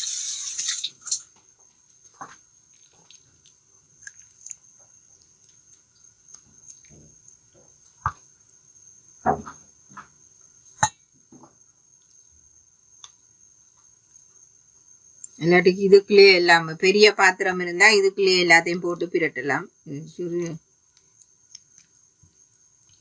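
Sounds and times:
wet squelches of batter: 1.0 - 8.6.

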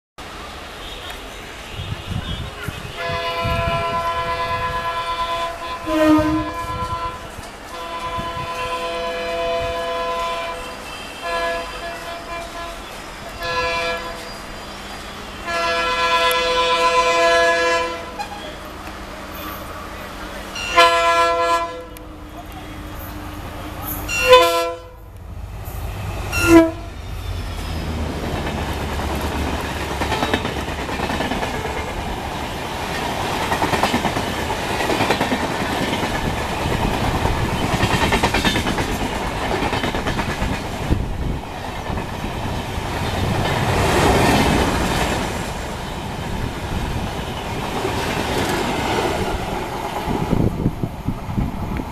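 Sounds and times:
train rushing past: 0.2 - 51.9
wheels on rail: 0.2 - 51.9
locomotive horn blasts: 1.7 - 14.4, 15.3 - 18.6, 20.6 - 25.1, 26.3 - 27.2.

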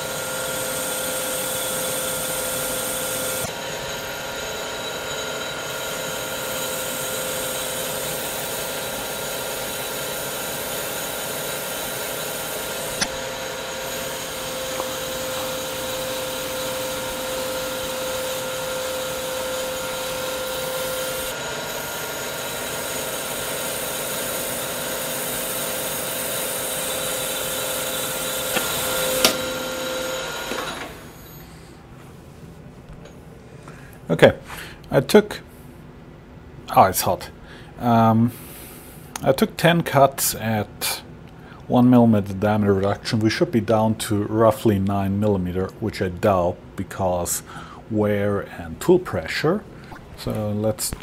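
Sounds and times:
lathe cutting hiss: 0.0 - 31.9.

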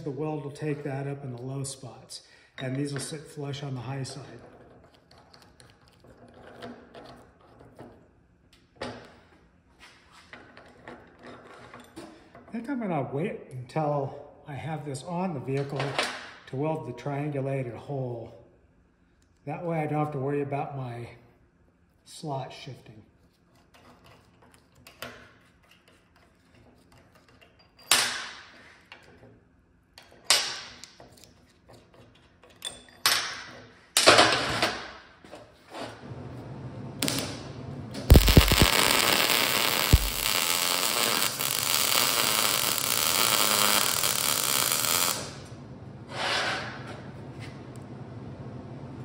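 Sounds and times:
power tool running: 38.1 - 45.4.

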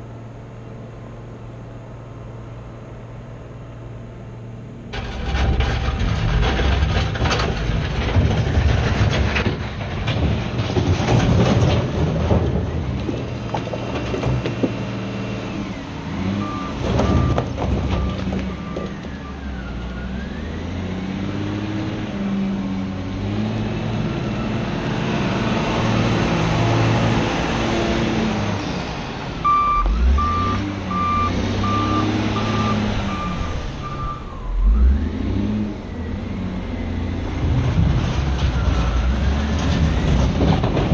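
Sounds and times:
rock clattering: 5.2 - 14.9
loader diesel engine revving: 20.0 - 40.9
back-up alarm beeping: 29.4 - 35.1.

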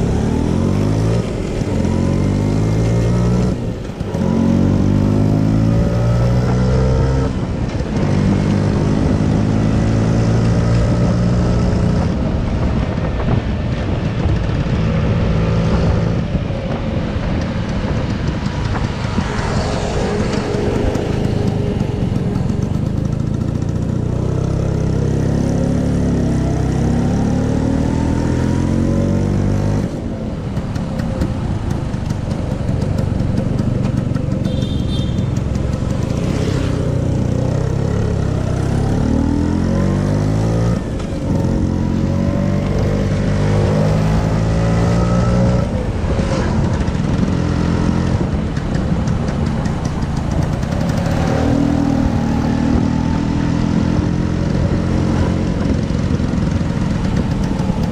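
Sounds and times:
wind on microphone: 3.3 - 24.2, 27.9 - 57.9
scooter engine running: 11.9 - 26.3, 29.4 - 57.9.

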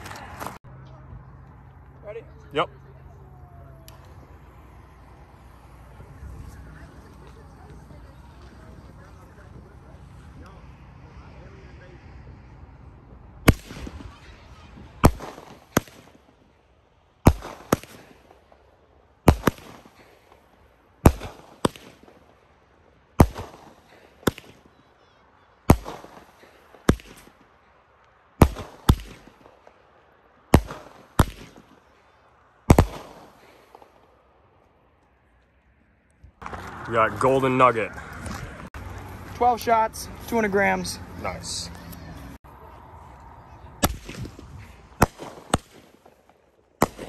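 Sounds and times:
firework bangs with hiss: 13.4 - 14.3, 14.9 - 16.3, 17.2 - 18.6, 19.2 - 22.4, 23.2 - 24.7, 25.7 - 27.5, 28.4 - 29.7, 30.5 - 31.9, 32.7 - 34.1, 43.8 - 47.0.

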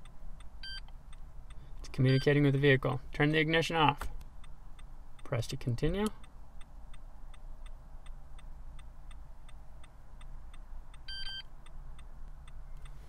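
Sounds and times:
hazard-light flasher ticking: 4.2 - 13.0.

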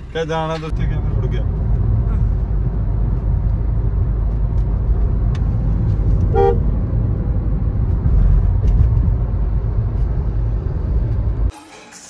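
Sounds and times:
car driving low rumble: 0.0 - 11.5
car horn toot: 6.3 - 6.7.

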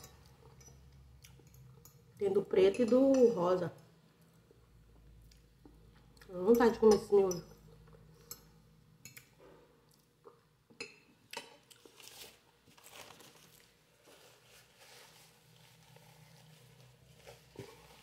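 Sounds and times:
faint chewing of noodles: 11.3 - 18.0.

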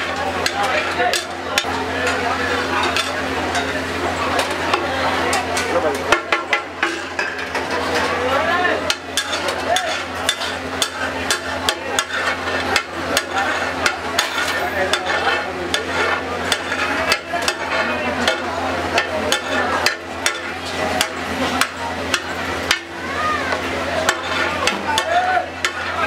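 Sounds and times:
metal spatula scraping on griddle: 8.9 - 18.4, 24.0 - 24.8.

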